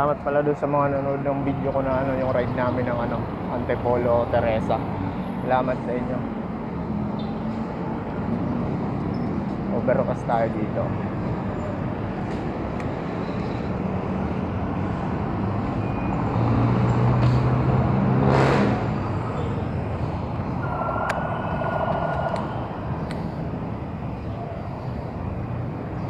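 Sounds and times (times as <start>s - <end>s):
city road traffic: 0.0s - 26.0s
vehicle engine passing close: 13.9s - 23.8s.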